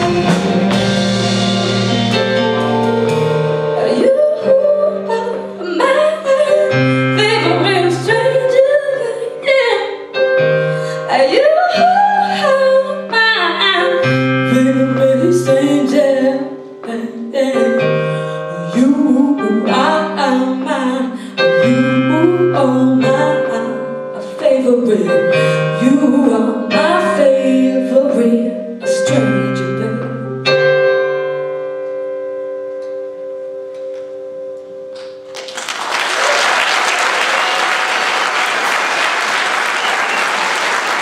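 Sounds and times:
electric guitar: 0.0 - 5.6
electric keyboard: 0.0 - 35.6.

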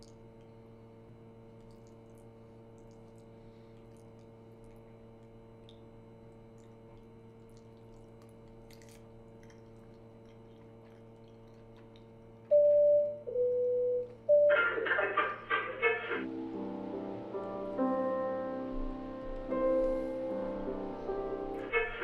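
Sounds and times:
electrical hum: 0.0 - 22.0
small wet sounds: 1.4 - 12.5.

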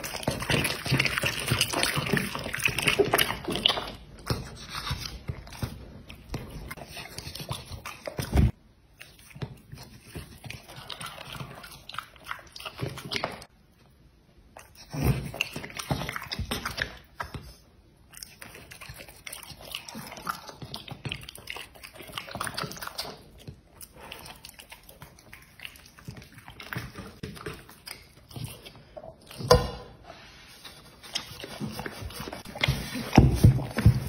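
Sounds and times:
dog chewing: 0.0 - 13.6, 14.6 - 29.8.

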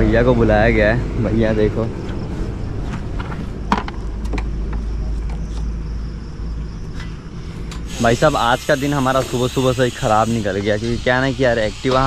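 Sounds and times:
steady low rumble: 0.0 - 8.5
clicks and knocks of parts: 2.9 - 5.7.

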